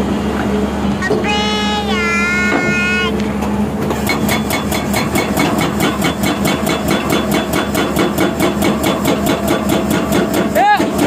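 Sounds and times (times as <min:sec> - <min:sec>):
excavator engine running: 0:00.0 - 0:11.0
hydraulic breaker hammering rock: 0:03.9 - 0:11.0.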